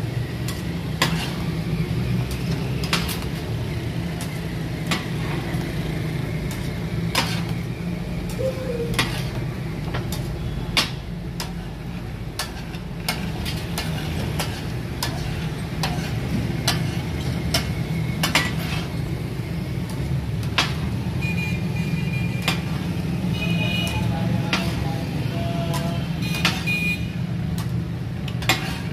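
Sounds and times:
metal spatulas clanking on griddle: 0:00.4 - 0:01.4, 0:07.1 - 0:07.5, 0:08.9 - 0:11.7, 0:12.4 - 0:18.9, 0:20.5 - 0:20.8, 0:23.8 - 0:24.8, 0:25.7 - 0:26.6, 0:28.3 - 0:28.9.

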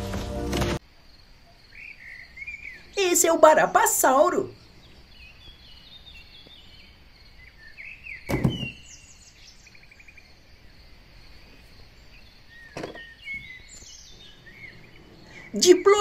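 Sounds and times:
birds chirping and trilling: 0:01.0 - 0:16.0
plastic toys knocking: 0:12.8 - 0:13.0.

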